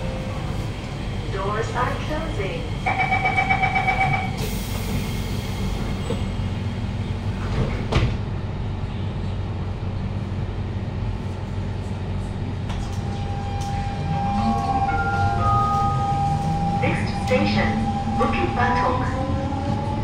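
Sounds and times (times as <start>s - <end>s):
low hum of train carriage: 0.0s - 20.0s
low whine of train pulling away: 0.0s - 20.0s
train doors sliding shut: 7.4s - 8.2s
electric traction tones: 12.9s - 20.0s.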